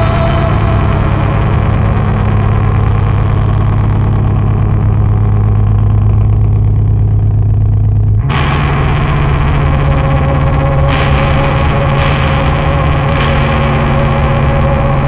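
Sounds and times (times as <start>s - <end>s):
heavy distorted music: 0.0s - 7.1s, 8.2s - 15.0s
low droning note: 0.0s - 15.0s.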